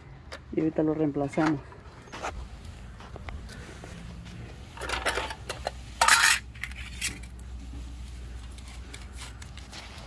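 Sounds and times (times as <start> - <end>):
saw blade clattering on concrete: 4.8 - 7.2.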